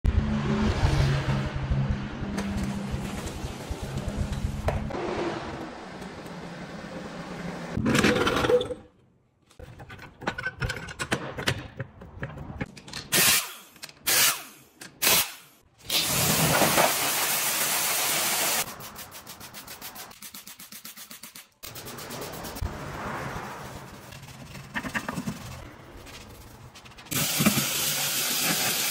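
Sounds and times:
pneumatic impact wrench bursts: 0:13.1 - 0:18.6.

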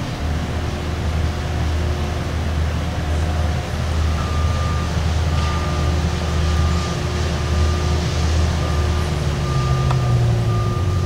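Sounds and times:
heavy vehicle engine humming: 0:00.0 - 0:11.0.

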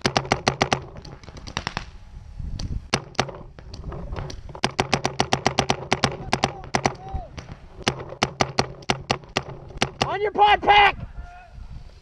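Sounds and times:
paintball markers firing: 0:00.0 - 0:02.0, 0:02.6 - 0:10.2.

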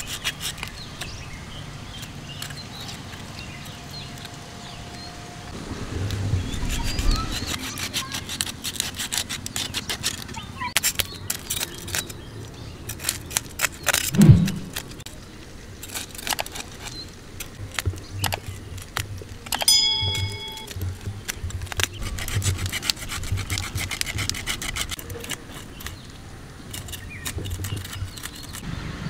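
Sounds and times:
knife scraping fish scales: 0:00.0 - 0:00.8, 0:06.9 - 0:12.2, 0:12.9 - 0:14.9, 0:22.0 - 0:26.0, 0:26.7 - 0:28.6
thump: 0:14.1 - 0:14.8.

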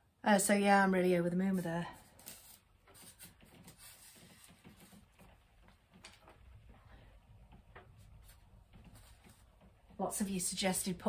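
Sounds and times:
faint rustling: 0:01.5 - 0:11.0.

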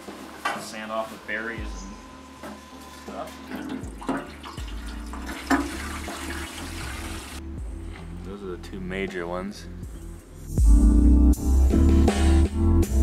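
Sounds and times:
water rushing into metal tank: 0:03.6 - 0:07.4.

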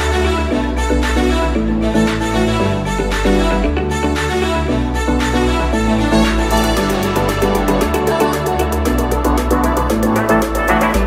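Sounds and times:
deep bass line: 0:00.0 - 0:11.0
instrumental music with held chords: 0:00.0 - 0:11.0.

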